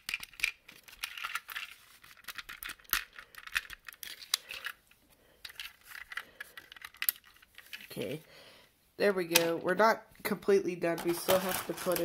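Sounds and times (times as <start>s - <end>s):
plastic parts clicking: 0.0s - 7.9s
plastic rubbing and scraping: 0.0s - 8.0s, 11.0s - 12.0s.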